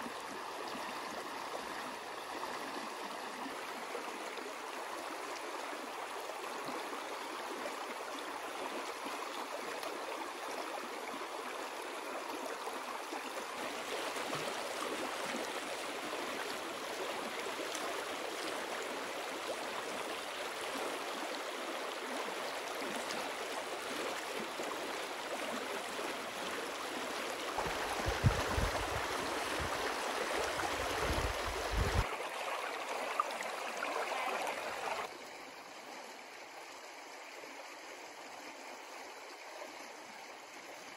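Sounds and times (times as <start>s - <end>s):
stream rushing over rocks: 12.9s - 35.1s.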